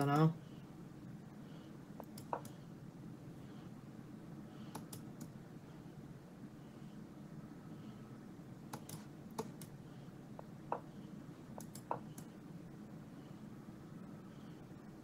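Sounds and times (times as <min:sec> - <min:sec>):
low room hum: 0:00.0 - 0:15.0
computer mouse clicks: 0:02.0 - 0:02.6, 0:04.7 - 0:05.3, 0:08.7 - 0:09.8, 0:11.6 - 0:12.4.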